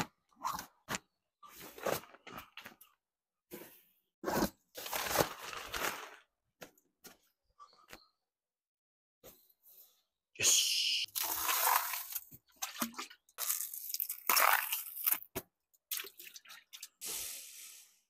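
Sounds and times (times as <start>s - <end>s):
water sloshing and splashing: 11.2s - 17.0s.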